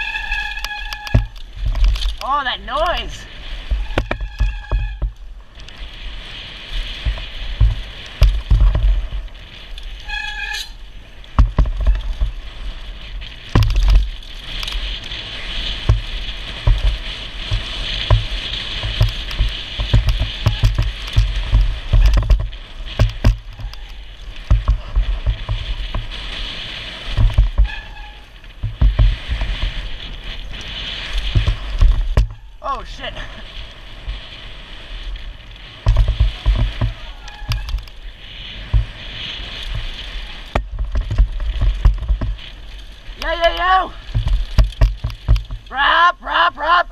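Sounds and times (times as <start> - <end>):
bike rattling and knocking: 0.0 - 2.4, 3.4 - 32.7, 33.8 - 45.8
wind buffeting microphone: 0.0 - 45.8
brief high squeal: 10.0 - 10.8
tyres hissing on dirt: 22.6 - 40.6, 42.4 - 46.9.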